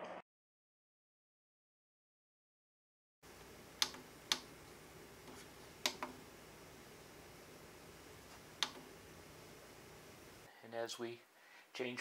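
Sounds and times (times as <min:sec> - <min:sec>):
push-buttons clicking: 0:03.8 - 0:04.5, 0:05.2 - 0:06.2, 0:08.6 - 0:08.9.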